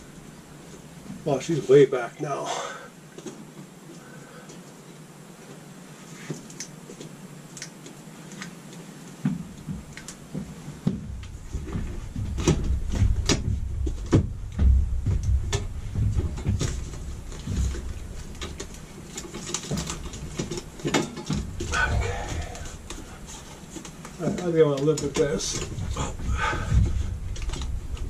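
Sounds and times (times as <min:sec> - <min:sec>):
low rubbing rumble: 0:11.0 - 0:19.0, 0:21.4 - 0:23.7, 0:24.4 - 0:28.0.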